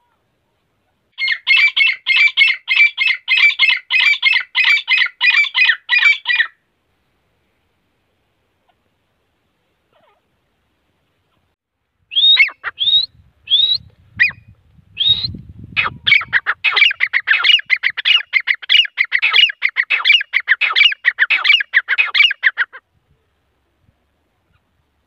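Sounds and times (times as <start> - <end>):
francolin calling: 1.1 - 6.6, 12.1 - 22.8.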